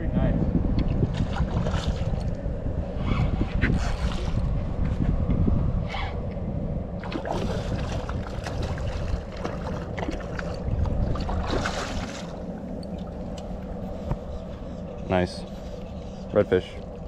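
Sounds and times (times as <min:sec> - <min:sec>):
wind on microphone: 0:00.0 - 0:17.0
fish splashing in water: 0:07.0 - 0:13.2.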